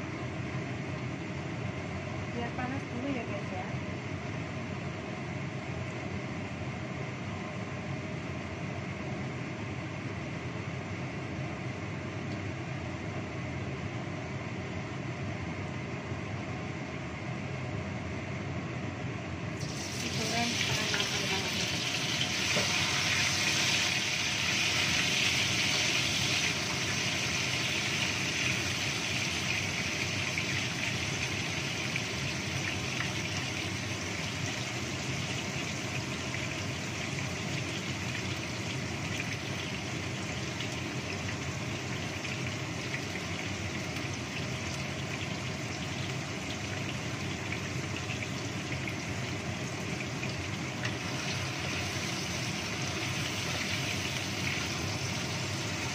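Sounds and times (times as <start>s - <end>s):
extractor hood fan running: 0.0s - 55.9s
tofu sizzling in hot oil: 19.6s - 55.9s.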